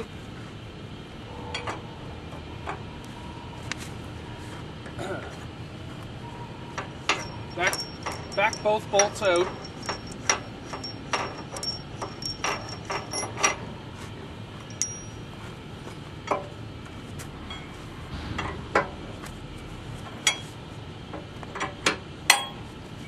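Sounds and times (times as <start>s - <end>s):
wrench clicking on metal bolts: 6.8s - 13.6s.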